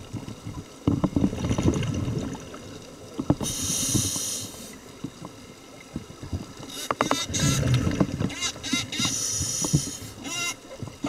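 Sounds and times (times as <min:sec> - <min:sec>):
exhaled air bubbling underwater: 0:00.0 - 0:11.0
regulator inhale hiss: 0:03.4 - 0:04.8, 0:09.1 - 0:10.2.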